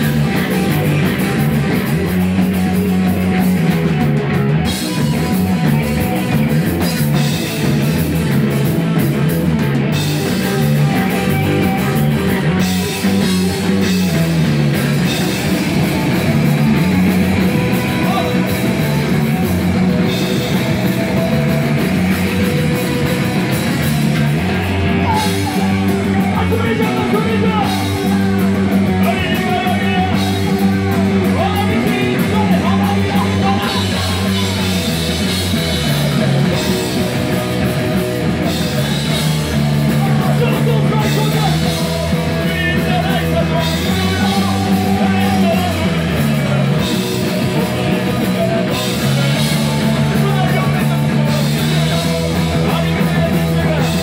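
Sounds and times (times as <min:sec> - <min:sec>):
bass guitar: 0:00.0 - 0:54.0
drum kit: 0:00.0 - 0:54.0
electric guitars: 0:00.0 - 0:54.0
person singing: 0:10.0 - 0:37.4, 0:38.6 - 0:54.0.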